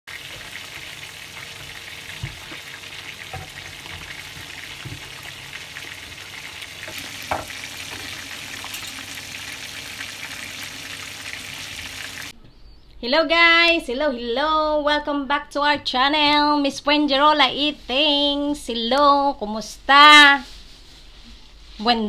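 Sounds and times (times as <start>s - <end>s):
chicken frying in oil: 0.0s - 12.3s.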